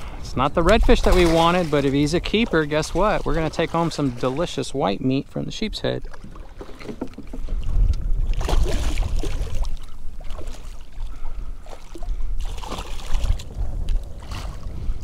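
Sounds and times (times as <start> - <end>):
wind rumble on microphone: 0.0 - 15.0
fish splashing in water: 8.2 - 13.5.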